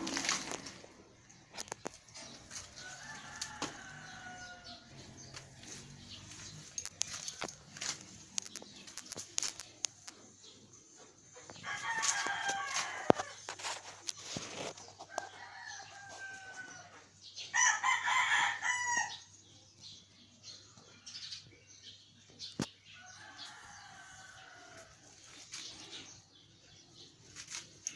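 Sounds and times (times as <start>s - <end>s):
rooster crowing: 2.8s - 5.1s, 11.6s - 13.3s, 15.3s - 19.2s.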